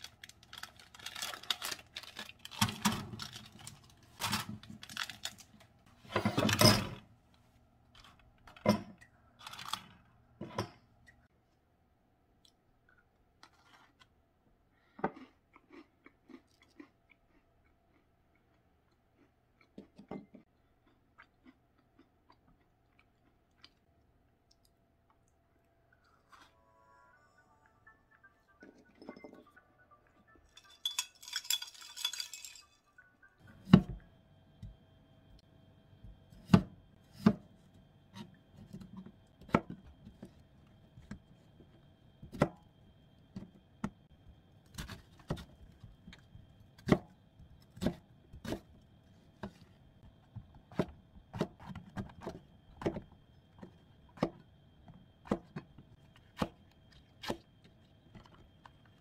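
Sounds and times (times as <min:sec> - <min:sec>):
clinking rattle: 0:30.6 - 0:32.9.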